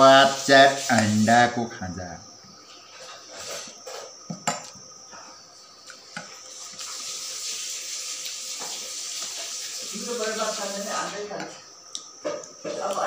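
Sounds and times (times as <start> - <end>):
steady hiss: 0.0 - 1.4, 6.6 - 11.3.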